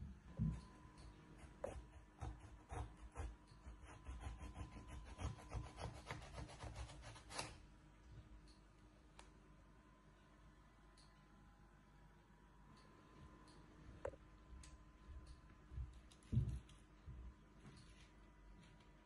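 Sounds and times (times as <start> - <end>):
knife sawing through melon: 2.2 - 7.4.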